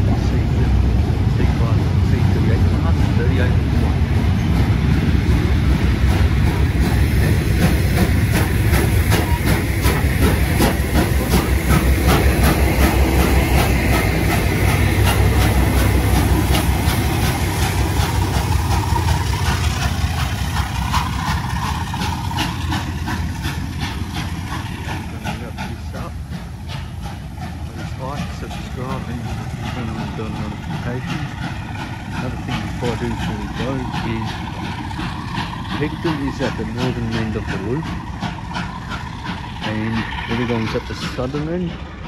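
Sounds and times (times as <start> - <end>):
steam hiss: 0.0 - 42.0
train rumbling past: 0.0 - 42.0.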